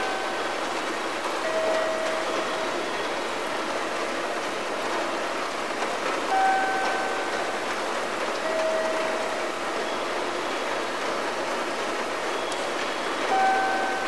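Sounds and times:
station background noise: 0.0s - 14.0s
held tone: 6.3s - 7.4s, 13.3s - 14.0s.

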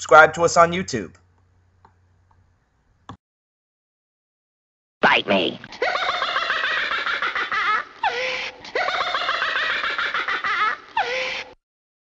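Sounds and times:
high-pitched giggling laughter: 5.8s - 11.6s.

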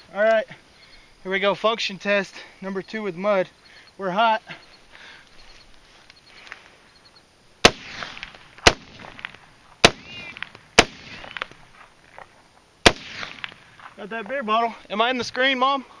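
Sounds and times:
rifle shots with echo: 7.6s - 11.6s, 12.8s - 13.9s.

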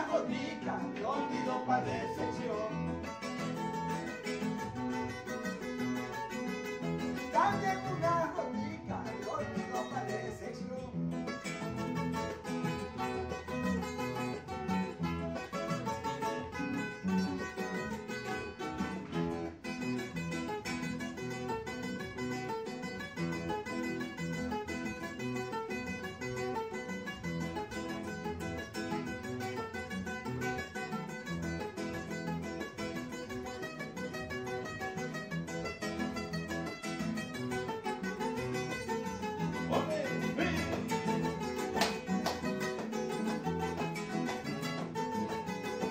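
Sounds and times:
acoustic guitars playing: 0.0s - 45.9s.

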